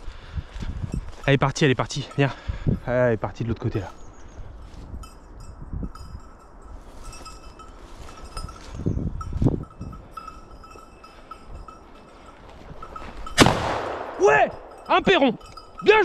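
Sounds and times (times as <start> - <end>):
dog collar bell jingling: 3.6 - 13.4, 14.2 - 16.0
shotgun shot: 13.4 - 14.2.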